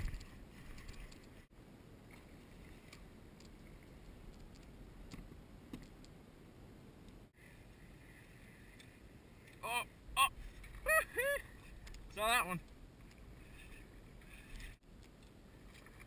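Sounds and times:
faint irregular clicks: 0.0s - 1.4s, 2.1s - 6.2s, 11.6s - 16.0s.

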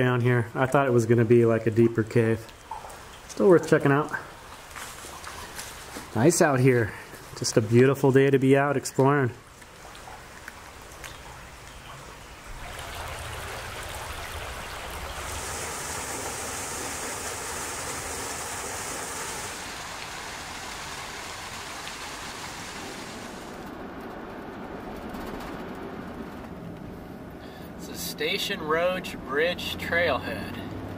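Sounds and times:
vehicle road noise: 9.4s - 30.9s
waterfall rushing: 12.5s - 23.6s.

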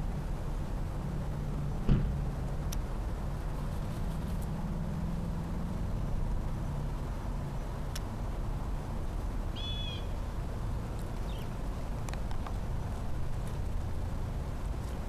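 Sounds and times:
car passing: 0.0s - 7.4s
low rumble of road traffic: 0.0s - 15.0s
high bird chirp: 9.6s - 10.1s.

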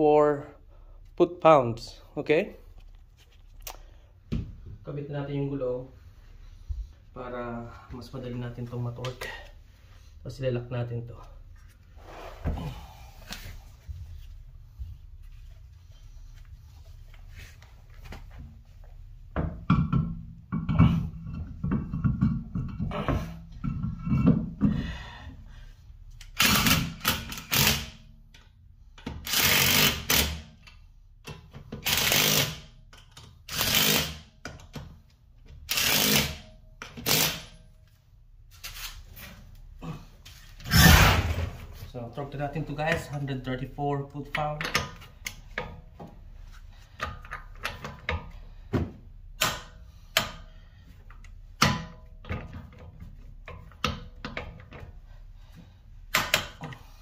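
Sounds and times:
power tool bursts: 31.8s - 32.6s, 40.7s - 41.5s.

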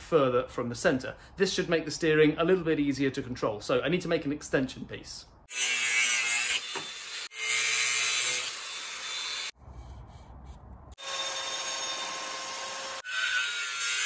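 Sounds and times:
angle grinder grinding steel: 5.5s - 14.0s.

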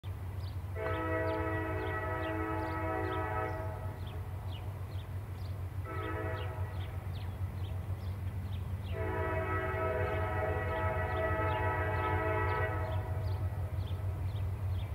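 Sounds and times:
diesel locomotive engine rumbling: 0.0s - 14.9s
locomotive horn blasts: 0.8s - 4.2s, 5.8s - 7.0s, 8.9s - 14.0s.

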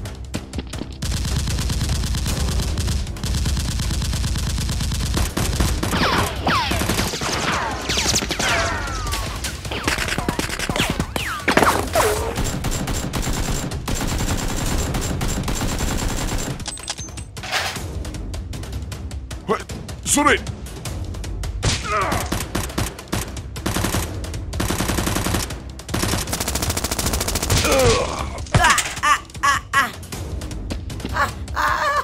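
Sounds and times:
rapid automatic gunfire: 1.0s - 8.5s, 9.3s - 16.7s, 22.3s - 27.6s.

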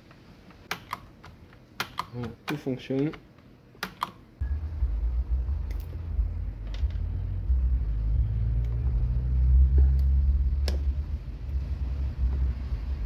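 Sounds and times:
low rumble: 4.4s - 13.0s.

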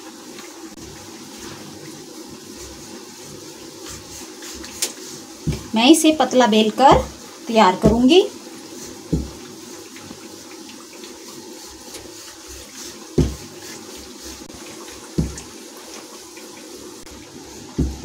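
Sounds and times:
food sizzling in hot oil: 0.0s - 18.0s
dull knocks: 9.1s - 9.4s, 15.2s - 15.5s, 17.8s - 18.0s.

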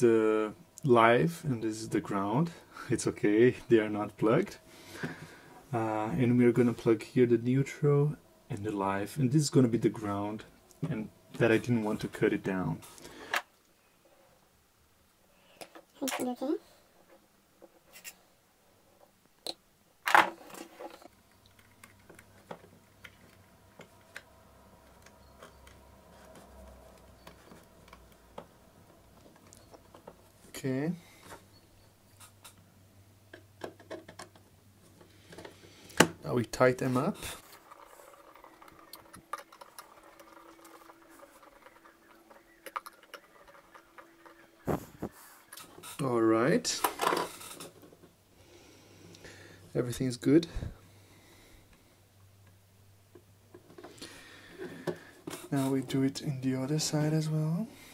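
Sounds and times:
faint steady hum: 0.0s - 57.9s
hands handling wires and plastic: 20.0s - 30.6s, 33.3s - 48.2s.

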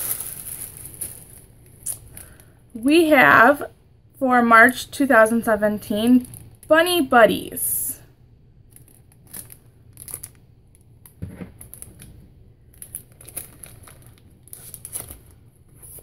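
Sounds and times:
paper and cardboard rustling: 12.8s - 16.0s.

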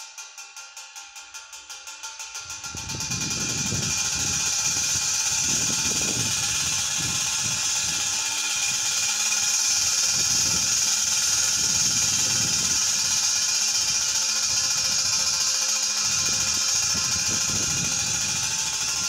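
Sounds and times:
propeller scarer rattling: 0.0s - 19.0s
wind buffeting microphone: 2.4s - 9.1s, 9.8s - 15.4s, 16.1s - 19.0s.

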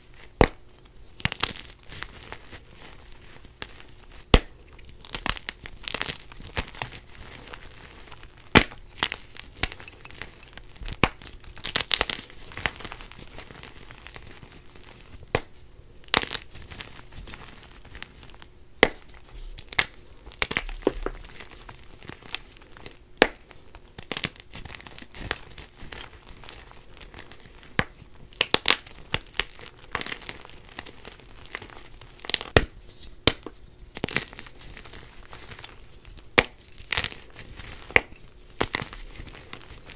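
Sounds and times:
chalk crunching and crumbling: 0.0s - 39.9s
chalk pieces snapping: 18.8s - 39.9s.

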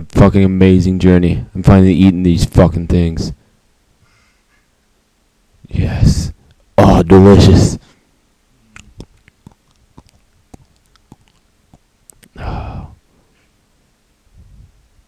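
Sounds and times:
person chewing: 8.7s - 12.7s
breathy noise: 12.1s - 13.6s.

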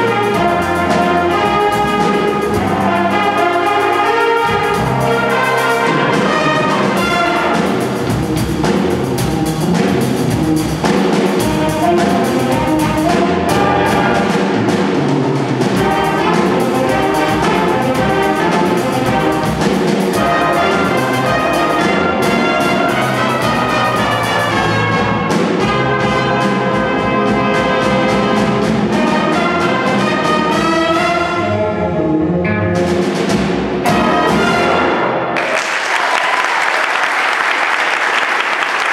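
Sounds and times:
jazz big band playing: 0.0s - 35.6s.

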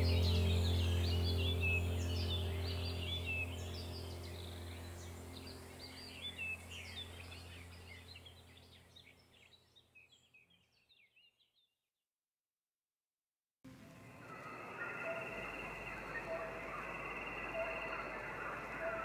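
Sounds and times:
low steady hum: 0.0s - 9.4s, 13.7s - 19.0s
birds chirping: 0.0s - 11.7s, 14.0s - 19.0s.

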